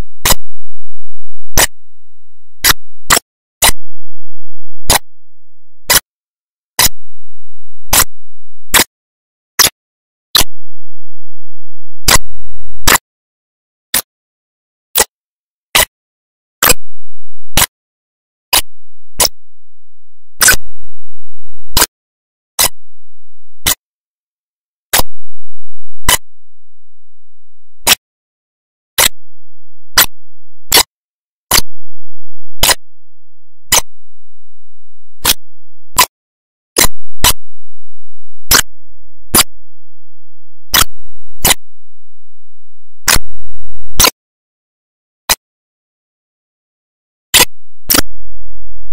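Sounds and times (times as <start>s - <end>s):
faint low hum: 25.0s - 27.8s.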